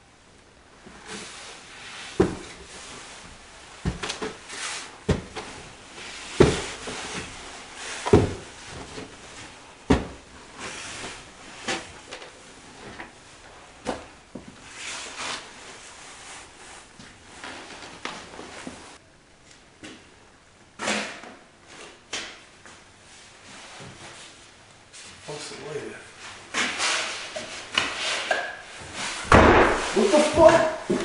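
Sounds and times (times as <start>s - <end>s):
sharp knocks and thumps: 5.0s - 5.6s, 29.2s - 31.0s.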